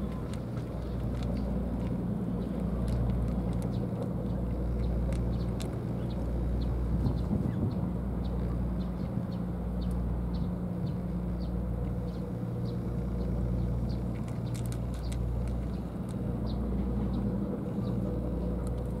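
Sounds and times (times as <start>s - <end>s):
cat crunching dry kibble: 0.0s - 6.6s, 13.7s - 16.3s
steady low rumble: 0.0s - 19.0s.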